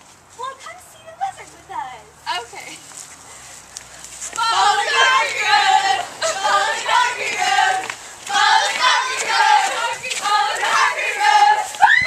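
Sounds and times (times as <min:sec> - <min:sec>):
group of voices singing: 0:04.3 - 0:12.0.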